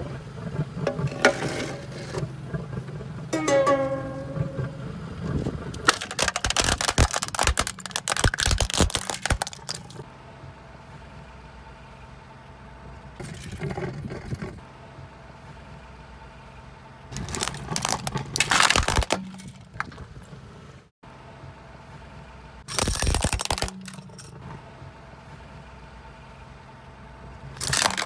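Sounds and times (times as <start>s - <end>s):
low steady hum: 0.0s - 13.7s
broken plastic pieces rattling: 5.8s - 10.0s, 17.2s - 20.0s, 22.7s - 24.3s, 27.6s - 28.0s
plastic toy crunching under tyre: 5.8s - 10.0s, 17.1s - 20.0s, 22.6s - 24.3s, 27.6s - 28.0s.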